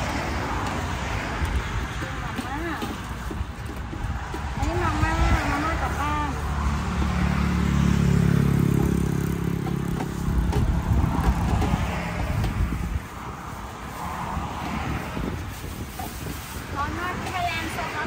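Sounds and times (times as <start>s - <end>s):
vehicle engine passing by: 4.5s - 15.4s.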